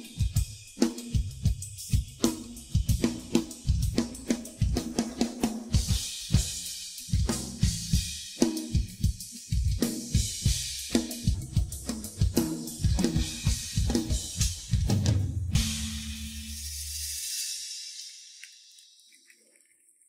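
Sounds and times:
rock drum groove: 0.0s - 17.7s
crash cymbal ringing: 15.5s - 19.0s.

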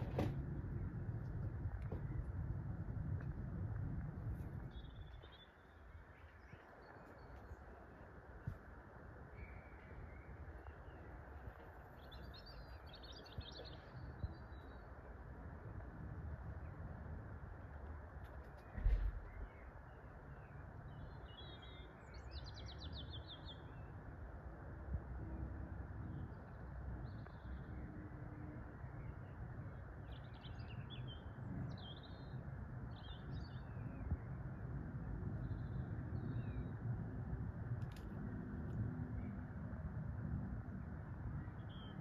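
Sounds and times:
low outdoor rumble: 0.0s - 42.0s
small birds chirping: 4.3s - 15.0s.

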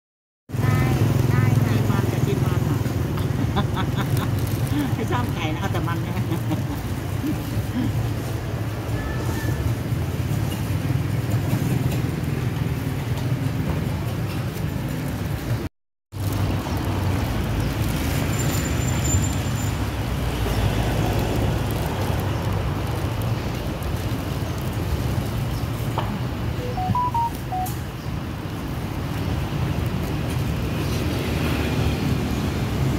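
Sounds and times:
street traffic rumble: 0.5s - 32.9s
short electronic beeps: 26.6s - 27.8s.

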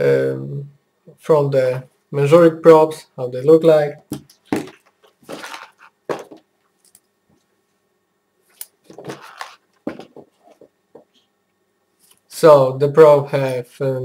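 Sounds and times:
test leads rustling and knocking: 4.1s - 7.0s, 8.5s - 11.2s.

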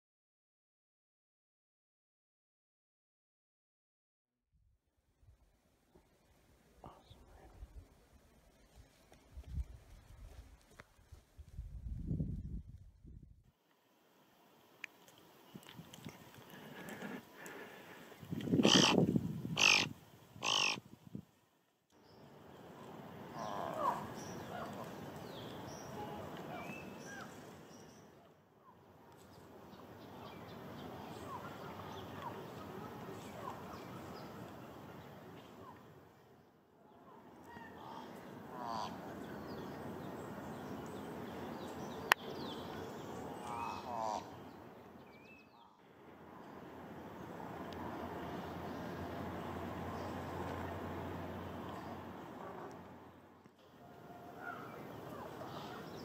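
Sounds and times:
raven calls: 16.4s - 19.0s, 19.6s - 20.8s, 23.3s - 25.0s, 37.4s - 39.2s, 43.2s - 44.6s, 53.8s - 56.0s
raven cawing: 18.6s - 19.0s, 19.6s - 20.8s, 37.8s - 39.0s, 43.5s - 44.4s.

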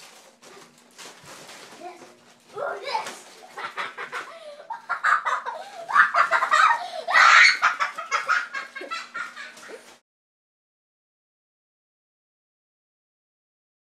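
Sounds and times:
children laughing: 2.8s - 10.0s.

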